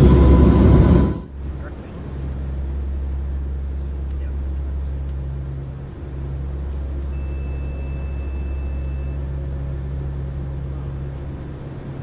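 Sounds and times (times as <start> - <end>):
aircraft engines droning: 0.0 - 12.0
thin high beep: 7.1 - 9.2.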